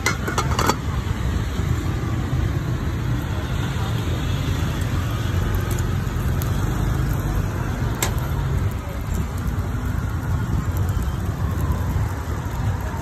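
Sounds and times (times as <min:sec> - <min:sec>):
traffic rumble: 0:00.0 - 0:13.0
faint background voices: 0:03.0 - 0:13.0.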